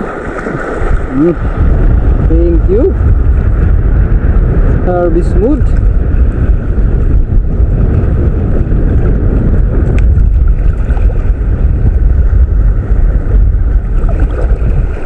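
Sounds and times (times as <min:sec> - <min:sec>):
sea water sloshing around legs: 0:00.0 - 0:01.5, 0:13.9 - 0:15.0
wind buffeting microphone: 0:00.0 - 0:15.0.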